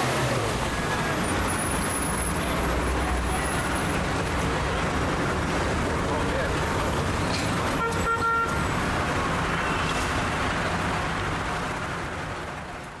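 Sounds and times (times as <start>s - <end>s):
road traffic din: 0.0s - 13.0s
car horn: 7.7s - 8.6s.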